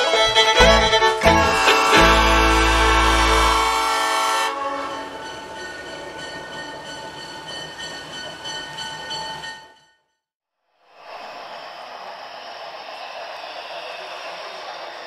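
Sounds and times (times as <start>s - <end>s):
bluegrass fiddle music: 0.0s - 3.7s
train horn chord: 0.6s - 5.2s
train rumble: 11.1s - 15.0s.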